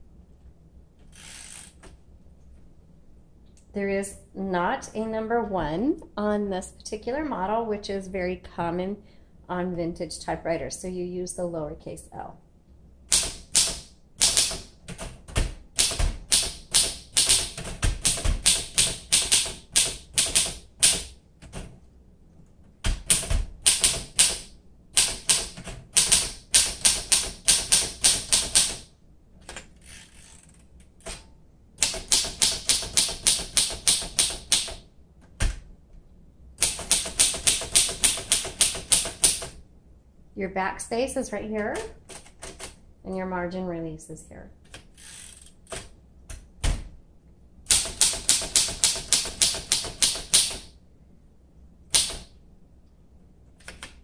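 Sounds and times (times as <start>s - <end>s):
typewriter key strikes: 47.7s - 50.7s, 51.9s - 52.3s.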